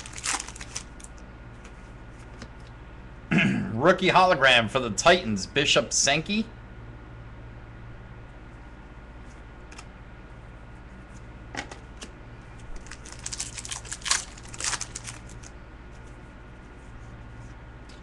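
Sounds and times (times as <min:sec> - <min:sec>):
cards clicking and rustling: 0:00.0 - 0:01.2, 0:12.8 - 0:15.5
steady low hum: 0:00.0 - 0:18.0.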